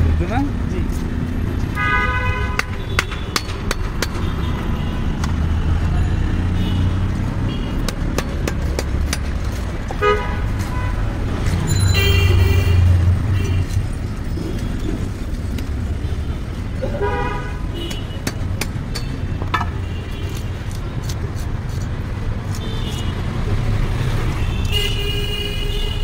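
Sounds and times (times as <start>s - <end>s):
traffic engine rumble: 0.0s - 26.0s
vehicle horns honking: 1.8s - 3.4s, 10.0s - 11.0s, 11.7s - 13.7s, 16.8s - 18.2s.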